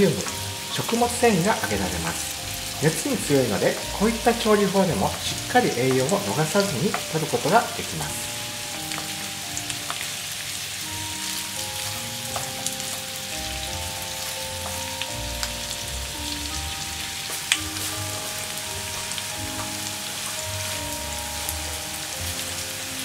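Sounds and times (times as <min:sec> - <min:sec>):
background music: 0:00.0 - 0:23.0
food sizzling in a frying pan: 0:00.0 - 0:23.0
chopsticks clicking against pan: 0:12.3 - 0:13.1.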